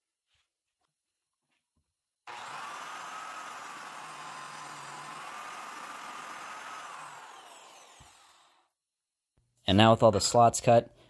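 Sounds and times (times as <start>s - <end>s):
biscuit joiner whining: 2.3s - 8.8s.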